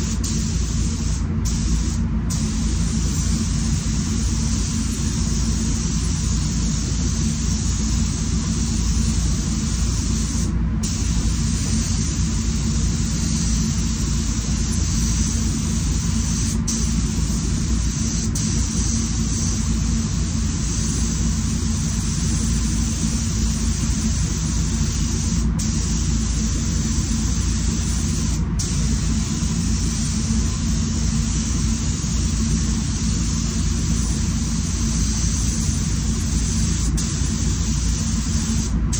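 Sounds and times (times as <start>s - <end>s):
spray gun hissing: 0.0s - 38.8s
ventilation fans running: 0.0s - 38.9s.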